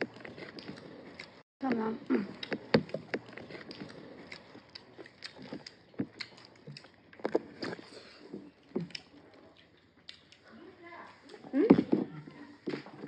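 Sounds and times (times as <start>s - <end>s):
chewing and lip-smacking: 0.0s - 13.0s.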